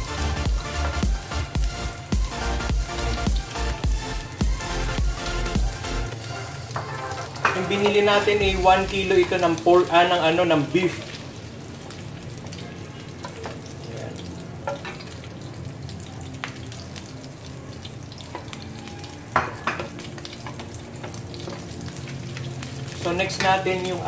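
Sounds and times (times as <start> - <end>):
frying sizzle in a pan: 0.0 - 24.0
wood tapping on a pan: 6.7 - 8.0, 14.6 - 15.0, 19.4 - 21.7.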